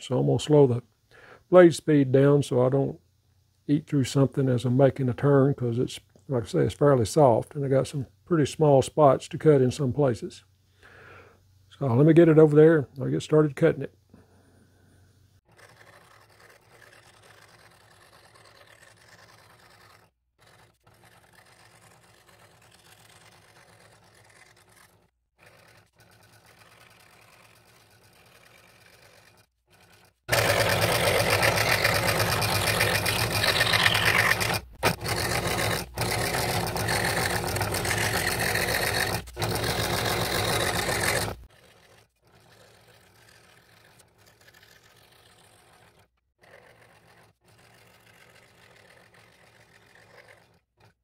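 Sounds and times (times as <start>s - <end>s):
scroll saw reciprocating clatter: 15.5s - 51.0s.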